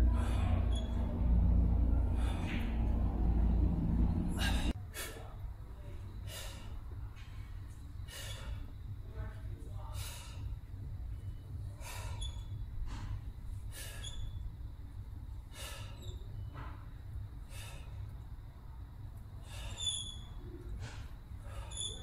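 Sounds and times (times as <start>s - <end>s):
steady low hum: 0.0s - 22.0s
short high squeaks: 0.3s - 1.2s, 12.0s - 12.6s, 13.8s - 14.4s, 19.5s - 22.0s
man exhaling forcefully: 4.3s - 5.1s.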